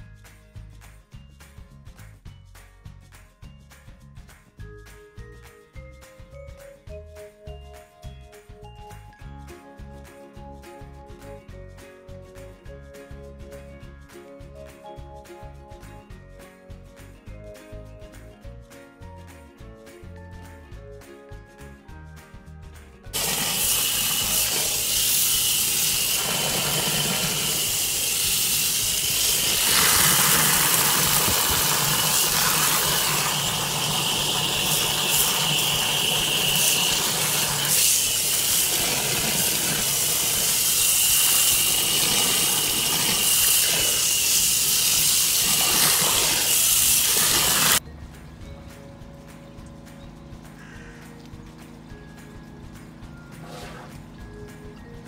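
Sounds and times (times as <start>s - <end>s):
high-pressure water jet spraying: 23.2s - 47.8s.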